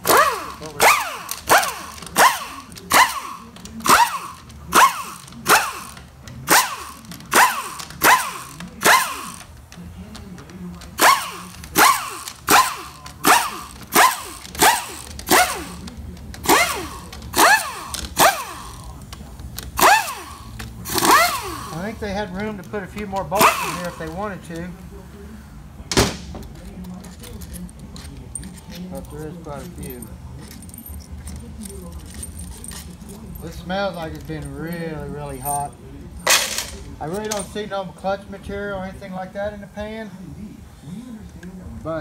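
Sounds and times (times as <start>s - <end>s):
cordless power driver whining: 0.0s - 9.8s, 10.7s - 18.9s, 19.8s - 21.9s, 23.3s - 24.1s.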